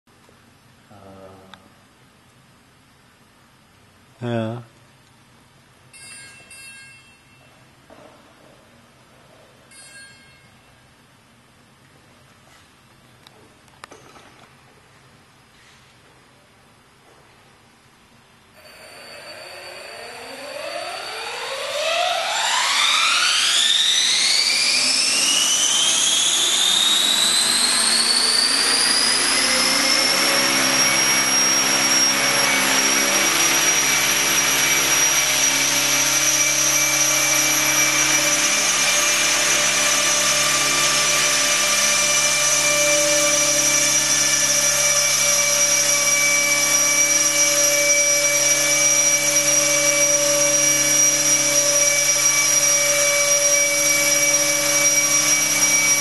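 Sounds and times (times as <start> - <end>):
model helicopter motor whine: 18.6 - 56.0.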